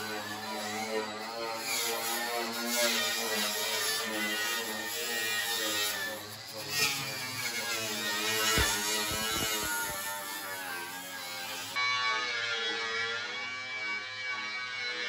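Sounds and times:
angle grinder on steel panel: 0:00.0 - 0:11.8.

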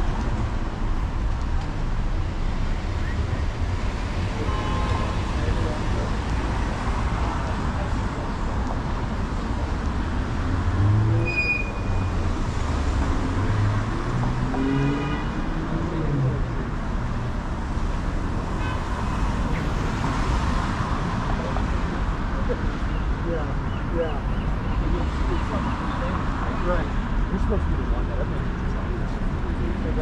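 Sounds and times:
cars passing and pulling away: 0:00.0 - 0:30.0
low traffic rumble: 0:00.0 - 0:30.0.

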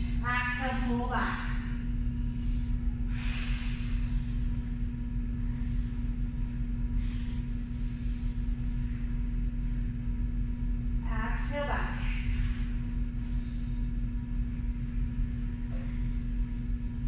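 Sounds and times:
low droning hum: 0:00.0 - 0:17.0
woman exhaling breathily: 0:02.3 - 0:04.4.

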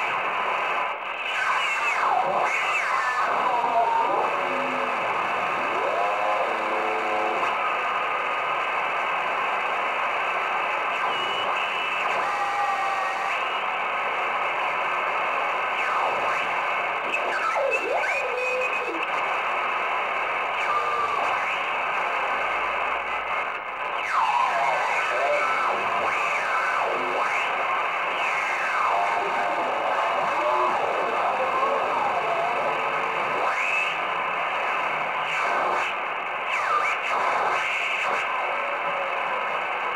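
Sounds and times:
radio static hiss: 0:00.0 - 0:39.9
radio whistles sliding in pitch: 0:10.8 - 0:13.8.

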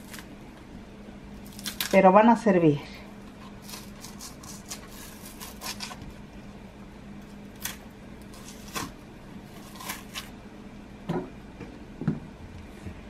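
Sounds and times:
plantain peel tearing: 0:00.0 - 0:00.3, 0:01.4 - 0:02.0, 0:03.5 - 0:06.1, 0:07.2 - 0:10.4
faint steady hum: 0:00.0 - 0:13.0.

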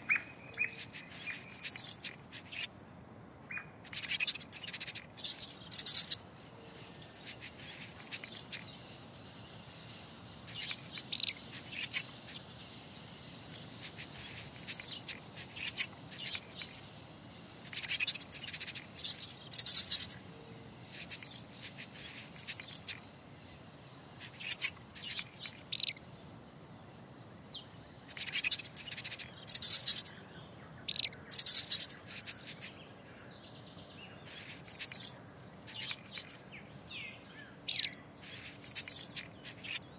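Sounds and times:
faint background hiss: 0:00.0 - 0:39.9
mouse squeaking: 0:00.5 - 0:02.7, 0:03.8 - 0:06.2, 0:07.0 - 0:08.7, 0:10.4 - 0:12.5, 0:13.5 - 0:16.8, 0:17.6 - 0:20.2, 0:20.9 - 0:23.0, 0:24.2 - 0:26.0, 0:28.1 - 0:30.1, 0:30.9 - 0:32.8, 0:34.3 - 0:36.4, 0:37.7 - 0:39.9.

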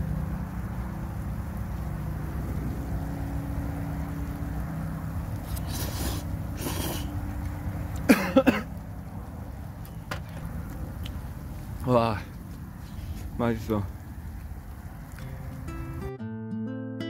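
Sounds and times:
slurping noodles: 0:05.4 - 0:07.2.

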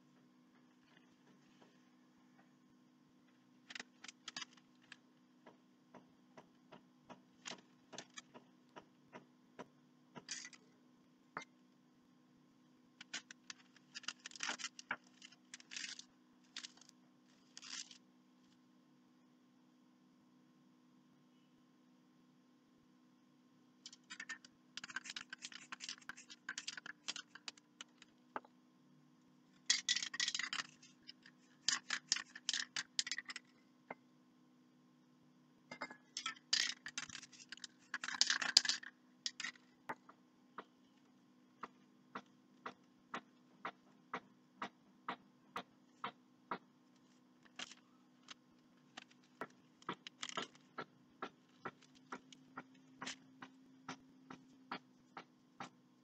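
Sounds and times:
faint steady hum: 0:00.0 - 0:56.0
spray can ball rattling: 0:36.2 - 0:39.5.

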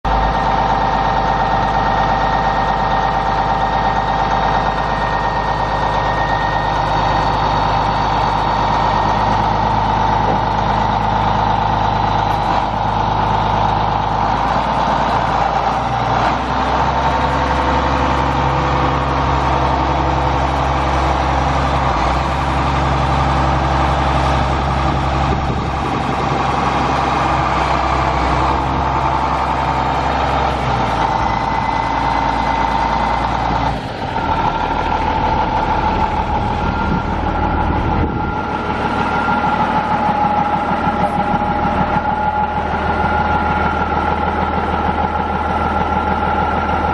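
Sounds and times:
tractor diesel engine running: 0:00.0 - 0:46.9
steady high whine: 0:30.9 - 0:46.9.

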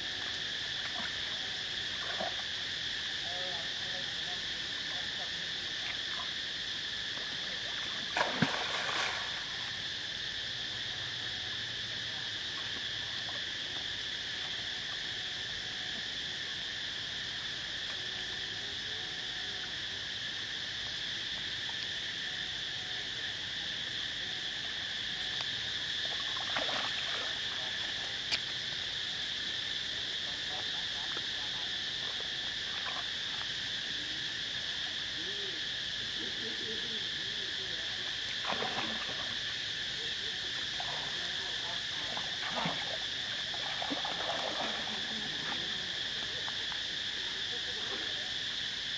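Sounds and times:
high insect drone: 0:00.0 - 0:48.9
water splashing: 0:07.6 - 0:09.6, 0:26.0 - 0:28.2, 0:38.4 - 0:39.4, 0:41.9 - 0:46.6.

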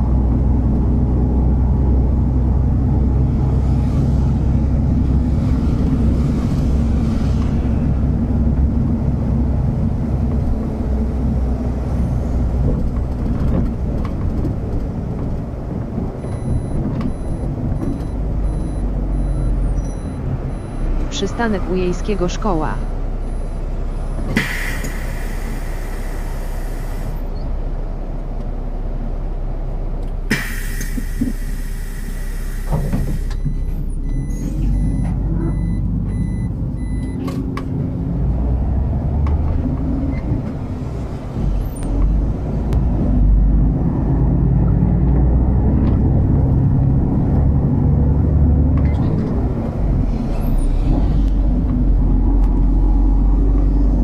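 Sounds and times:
bus engine revving: 0:00.0 - 0:54.0
bus air brakes hissing: 0:24.2 - 0:27.3, 0:30.3 - 0:33.4.

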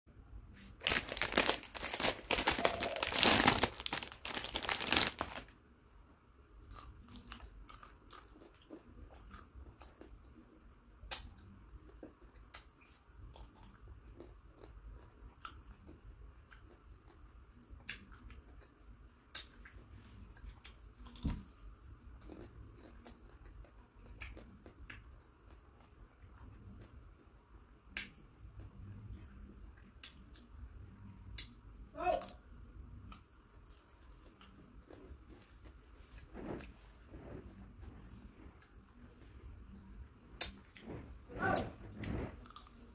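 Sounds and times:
plastic wrapper crinkling: 0:00.6 - 0:05.5
chewing: 0:06.7 - 0:10.5, 0:11.1 - 0:21.4, 0:22.1 - 0:31.5, 0:33.0 - 0:42.9.

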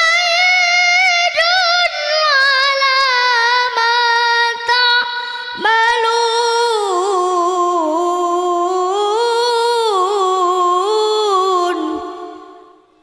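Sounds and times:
child reciting in melodic style: 0:00.0 - 0:05.2.

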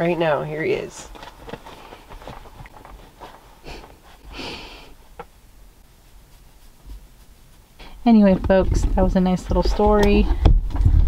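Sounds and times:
dog sniffing and snorting: 0:03.1 - 0:05.0.

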